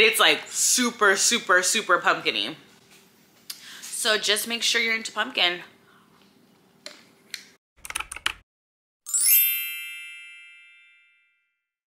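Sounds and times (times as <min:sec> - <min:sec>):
sharp typing clicks: 0:07.8 - 0:08.4
bright chime: 0:09.1 - 0:11.7.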